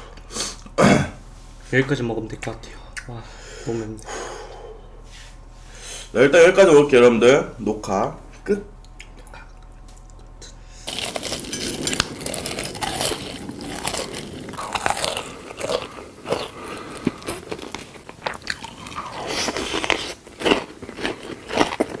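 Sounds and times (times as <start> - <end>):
crunching and chewing: 8.8 - 22.0.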